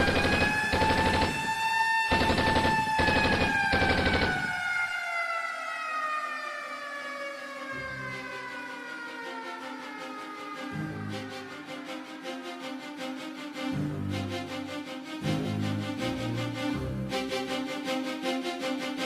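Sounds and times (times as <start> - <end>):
automatic gunfire: 0.0 - 4.6
air raid siren wailing: 0.0 - 13.4.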